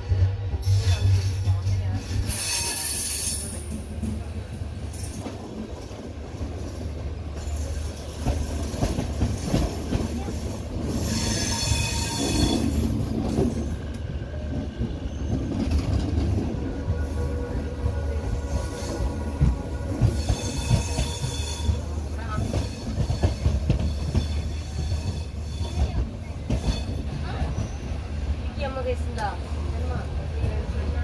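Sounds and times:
train rumbling: 0.0 - 31.0
high-pitched wheel squeal: 2.3 - 3.6, 11.0 - 12.9, 20.1 - 21.8.

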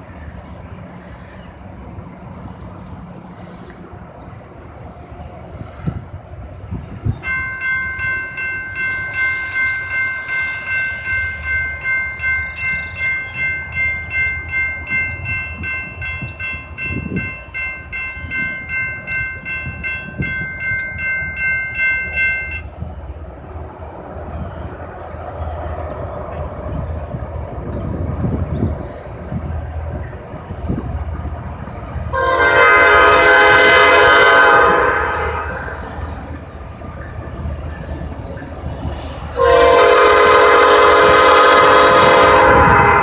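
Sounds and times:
diesel freight train rumble: 0.0 - 43.0
railroad warning bell ringing: 6.8 - 23.3, 26.7 - 43.0.

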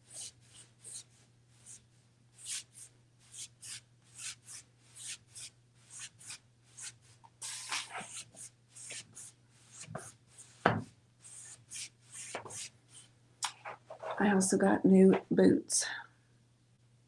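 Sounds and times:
paintbrush swishing on wood: 5.9 - 13.1.

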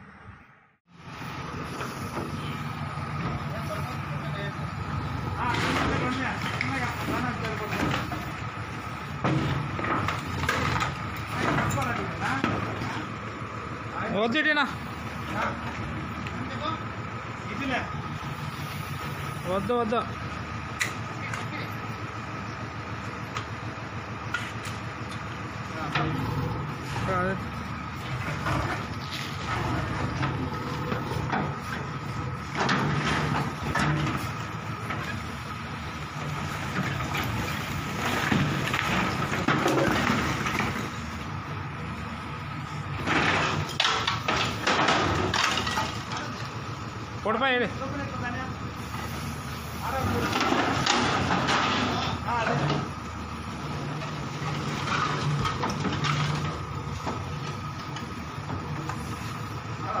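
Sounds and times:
diesel engine running under load: 0.0 - 60.0
masonry crunching and crumbling: 2.2 - 16.8, 24.5 - 46.7, 47.9 - 59.8.

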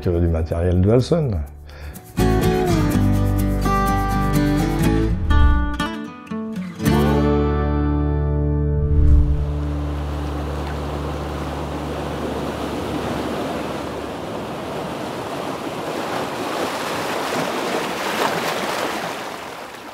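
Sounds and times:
surf washing onto pebbles: 9.1 - 19.9.

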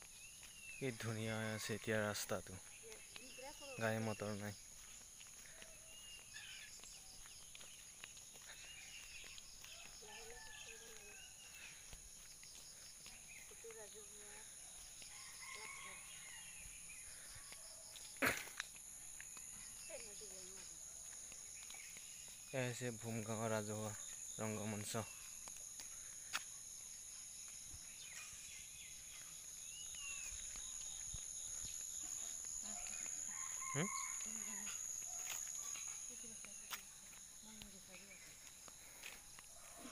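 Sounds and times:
bird chirp: 0.0 - 25.9, 26.8 - 39.9
crickets droning: 0.0 - 39.9
rooster crowing: 9.8 - 11.4, 15.1 - 16.5, 33.2 - 35.2.

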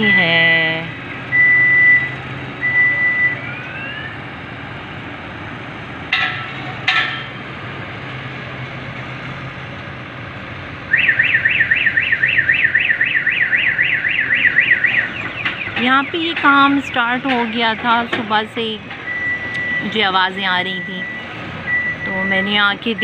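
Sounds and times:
steady high beep: 0.0 - 3.6, 19.1 - 23.0
street noise: 0.0 - 23.0
car alarm siren: 1.3 - 4.3, 10.9 - 16.4, 18.6 - 23.0.

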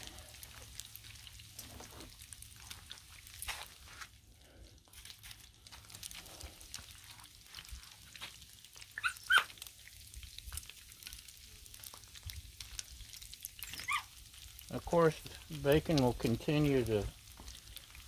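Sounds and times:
bacon sizzling on a griddle: 0.0 - 18.0
dog barking: 9.0 - 9.5.

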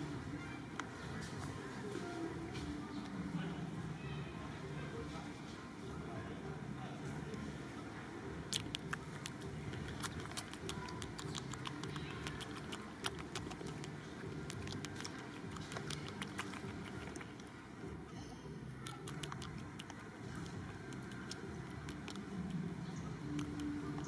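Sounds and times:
sharp clicks and ticks: 8.5 - 17.5, 18.8 - 22.6, 23.2 - 24.0.

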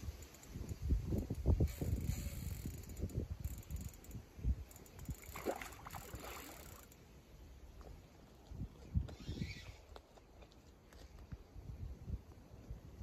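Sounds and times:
fishing reel clicking: 0.0 - 7.0.

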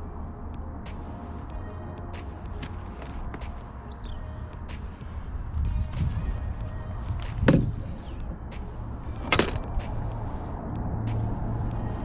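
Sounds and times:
wind rumbling on microphone: 4.0 - 12.0.

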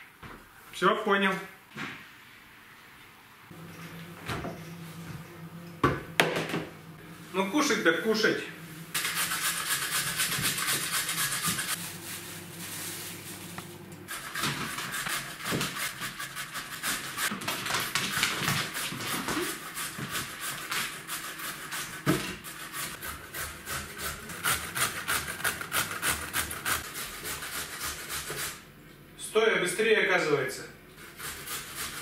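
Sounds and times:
carrots grated on metal grater: 8.9 - 11.8, 14.1 - 17.3, 18.6 - 28.6.

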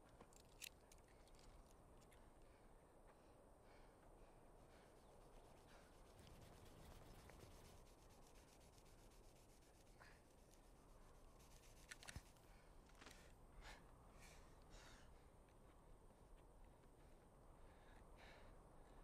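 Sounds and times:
rope rubbing and rustling: 5.2 - 13.3.

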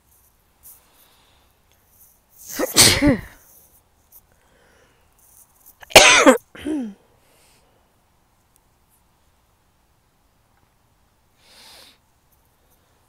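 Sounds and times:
woman sneezing: 2.5 - 3.4, 5.8 - 7.0.

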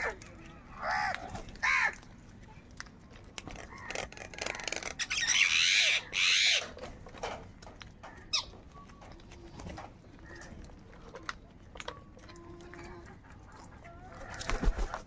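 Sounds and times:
crows cawing: 0.9 - 2.0.

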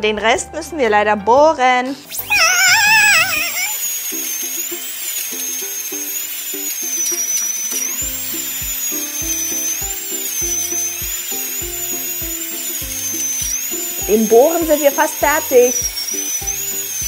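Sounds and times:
toy drill whining: 2.1 - 17.0
background music with beat: 7.8 - 17.0.

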